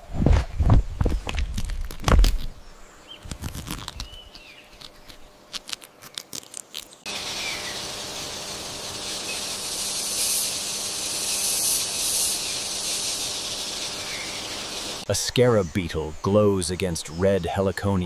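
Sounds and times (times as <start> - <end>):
crunching crackling clicks: 1.0 - 2.5, 3.2 - 7.1
insect chorus hiss: 2.4 - 18.0
faint chirps: 7.0 - 18.0.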